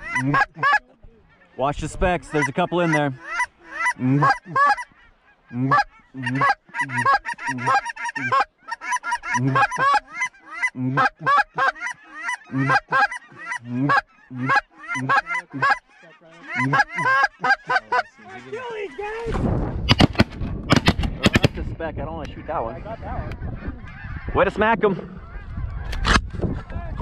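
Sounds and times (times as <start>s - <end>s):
goose call honks and clucks: 0.0s - 19.3s, 22.3s - 26.3s.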